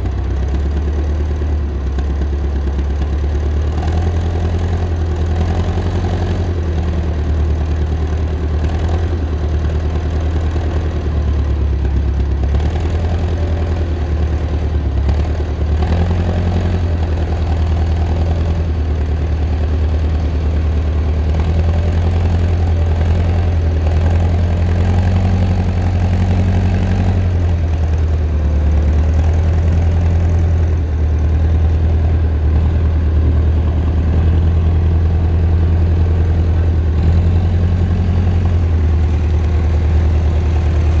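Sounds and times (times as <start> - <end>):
diesel engine running: 0.0 - 41.0.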